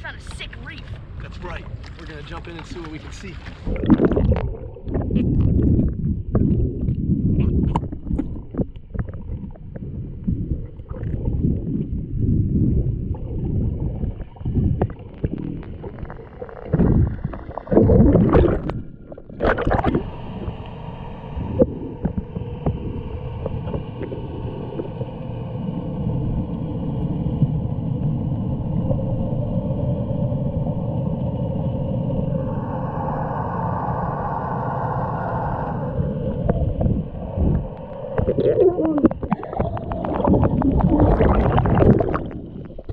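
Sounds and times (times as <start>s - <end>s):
underwater hum with faint tones: 0.0s - 42.9s
underwater sloshing and thumps: 1.6s - 20.7s, 21.4s - 25.1s, 36.3s - 42.9s.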